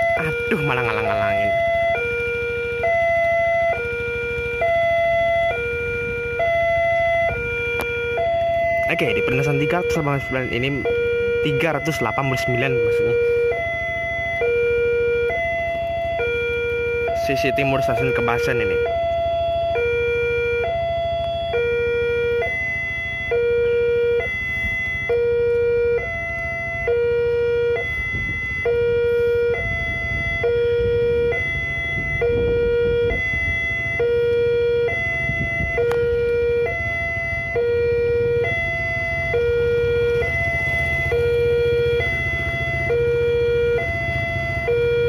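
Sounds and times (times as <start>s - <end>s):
two-tone level crossing siren: 0.0s - 45.0s.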